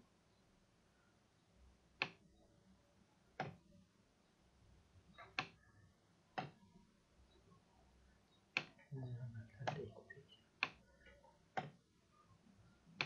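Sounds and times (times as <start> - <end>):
computer mouse clicking: 8.5 - 8.8, 10.6 - 11.8.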